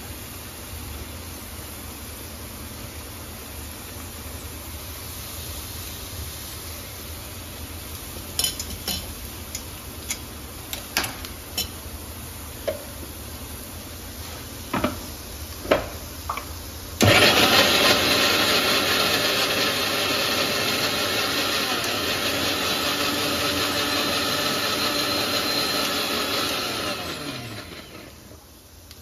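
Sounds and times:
mixer grinder motor: 17.0 - 28.3.

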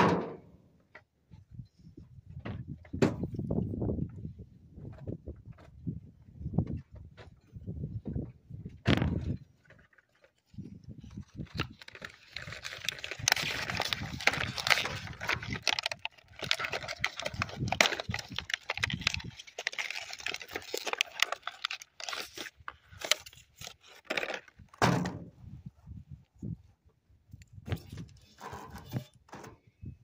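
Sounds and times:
plastic and metal clicks: 11.4 - 24.6.

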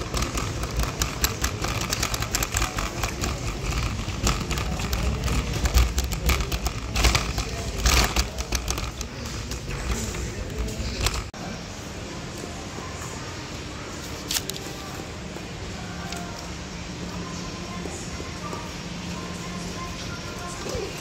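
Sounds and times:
shopping trolley rattling on tiles: 0.0 - 11.4.

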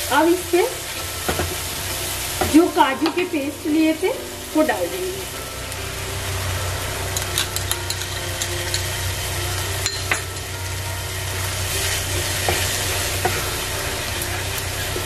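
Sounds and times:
sauce sizzling in oil: 0.0 - 15.0
spatula tapping and scraping pan: 12.1 - 13.5.

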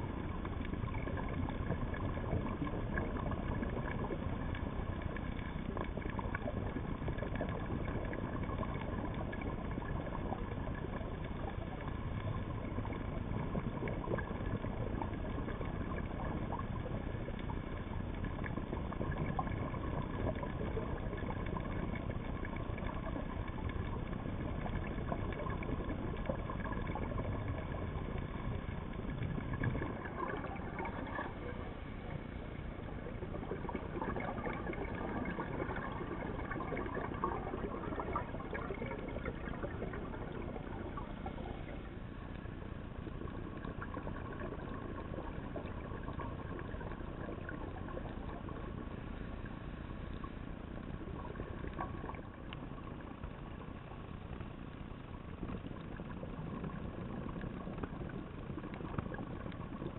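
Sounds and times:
faint whining tones: 0.0 - 59.9
muffled underwater noise: 0.0 - 59.9.

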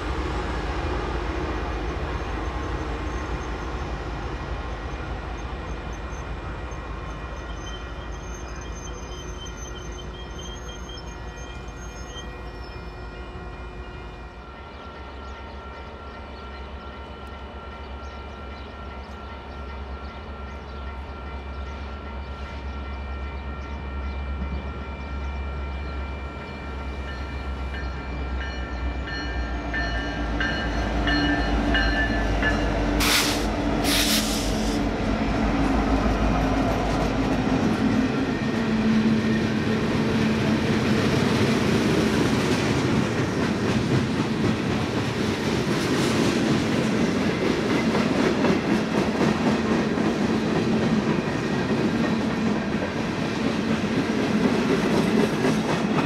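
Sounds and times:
diesel locomotives passing: 0.0 - 56.0
short loud hisses: 33.0 - 34.8.

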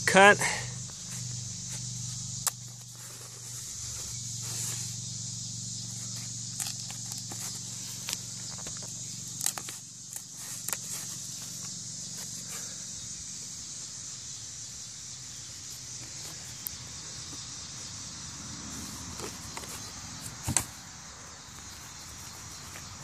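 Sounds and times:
high-pitched insect buzz: 0.0 - 23.0
handling clicks and rustles: 5.8 - 12.7, 18.7 - 20.8.

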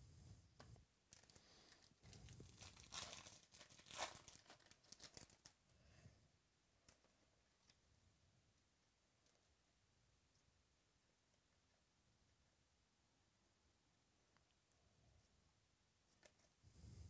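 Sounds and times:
foil wrapper tearing and crinkling: 1.1 - 5.6.

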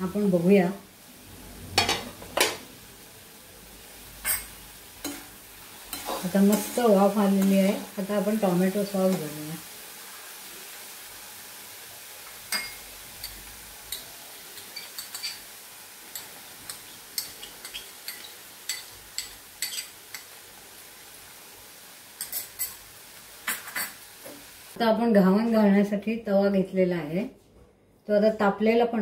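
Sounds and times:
faint steady hiss: 0.0 - 28.4
spoon clinking against bowls: 12.5 - 15.4, 16.2 - 20.3.

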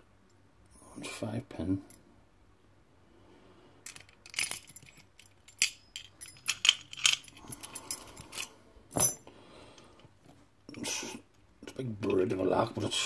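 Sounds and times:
keys jangling: 3.9 - 9.2.

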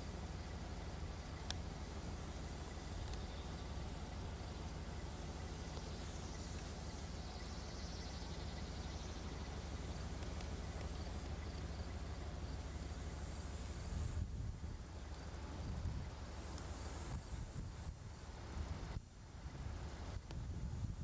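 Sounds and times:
insects chirring: 0.0 - 20.2
steady low rumble: 0.0 - 21.0.

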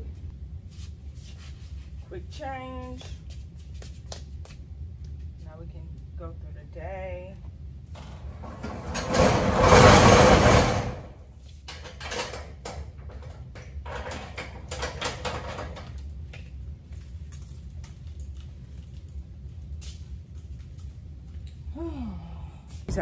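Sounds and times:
metal roll-up door rattling down: 8.0 - 11.2.

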